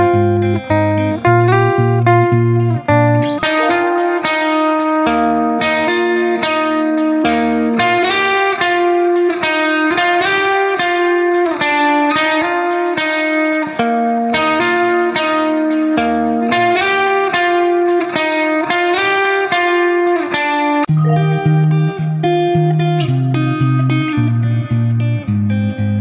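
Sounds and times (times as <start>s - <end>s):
plucked instrumental melody: 0.0s - 5.4s, 20.9s - 22.9s.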